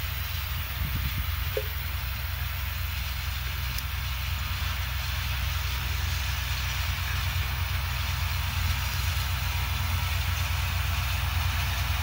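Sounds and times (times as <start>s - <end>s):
distant tractor engine drone: 0.0s - 12.0s.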